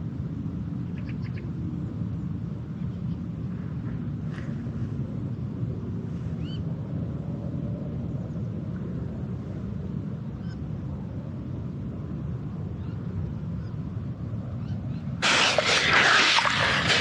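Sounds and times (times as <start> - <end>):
river low rumble: 15.2 - 17.0.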